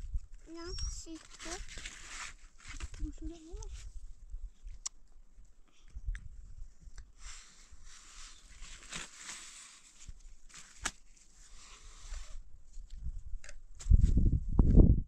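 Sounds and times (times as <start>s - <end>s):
flatbread rustling and tearing: 1.2s - 3.1s, 7.4s - 13.0s
wind rumble on microphone: 12.4s - 15.0s.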